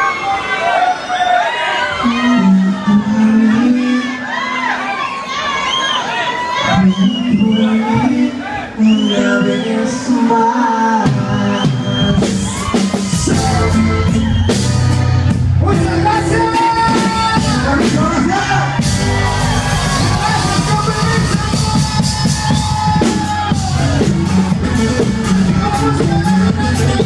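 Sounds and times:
crowd shouting: 0.0 - 10.9, 12.2 - 14.8, 16.1 - 27.0
person singing: 1.9 - 4.3, 6.7 - 14.4, 19.9 - 27.0
live band playing: 6.6 - 27.0
drum kit: 11.0 - 27.0.

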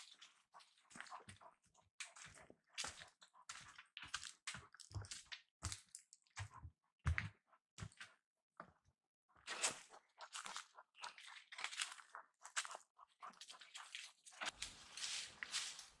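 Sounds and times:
footsteps crunching dry leaves: 14.5 - 16.0.

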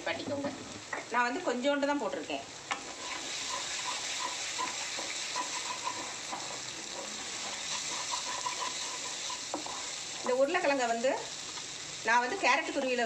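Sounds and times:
food sizzling in pan: 0.0 - 13.0
spatula scraping pan: 2.7 - 10.8.

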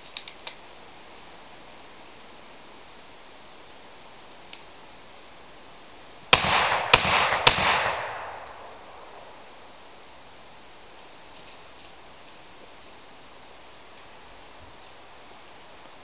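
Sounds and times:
faint click: 4.5 - 4.7
gunshots with echo: 6.3 - 9.3.

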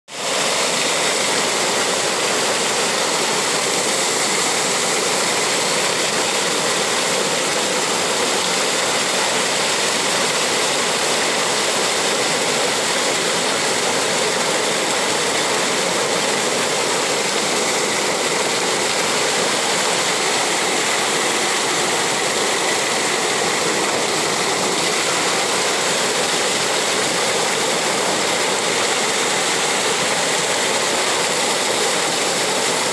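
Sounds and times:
waterfall rushing: 0.1 - 32.9.

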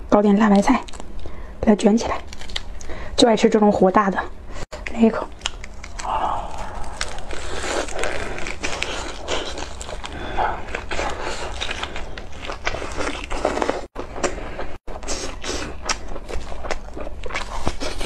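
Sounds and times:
wet crackly chewing: 2.2 - 2.9, 4.8 - 18.0.

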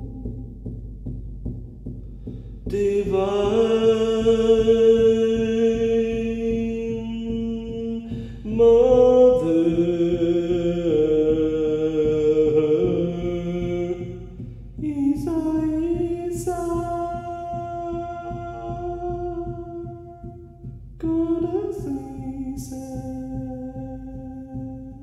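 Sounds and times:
frame drum beat: 0.0 - 25.0
man chanting: 2.7 - 25.0.

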